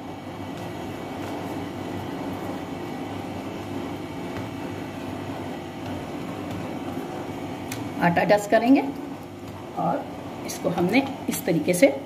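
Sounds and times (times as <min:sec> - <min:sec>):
low mechanical hum: 0:00.0 - 0:12.0
hands patting dough: 0:00.4 - 0:08.0.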